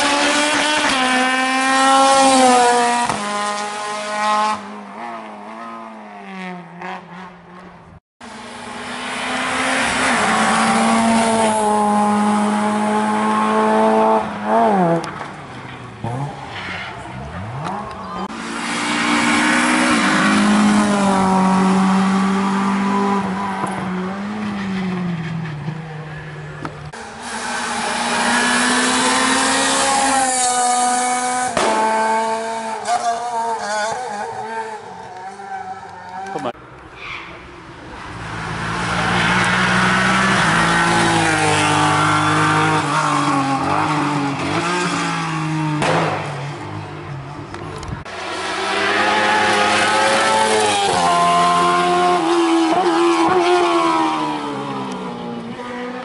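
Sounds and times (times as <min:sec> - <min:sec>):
race car engine at high revs: 0:00.0 - 0:07.4, 0:08.2 - 0:15.4, 0:17.2 - 0:36.6, 0:38.0 - 0:56.0
sudden sharp crack: 0:45.8 - 0:46.4.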